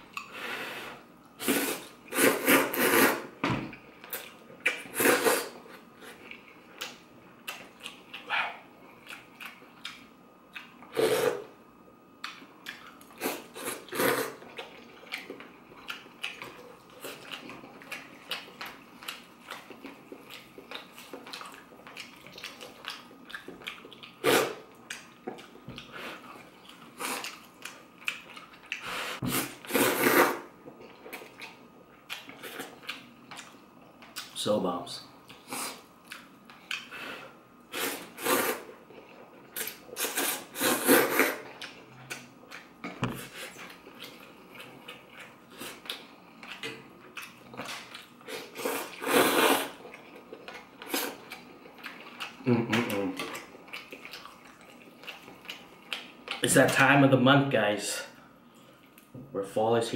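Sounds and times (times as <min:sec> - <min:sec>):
noodles slurping: 0:48.3 - 0:49.8.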